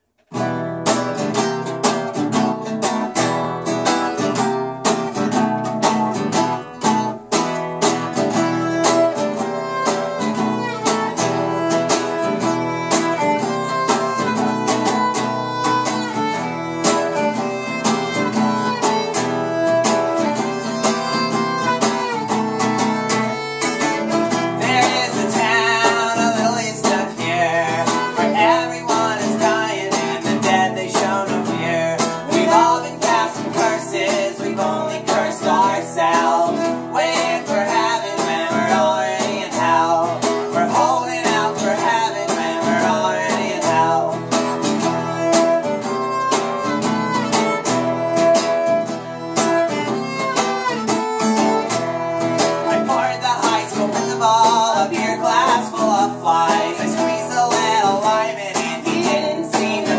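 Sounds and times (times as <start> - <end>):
strummed acoustic guitar: 0.0 - 59.9
bowed fiddle: 6.3 - 54.2.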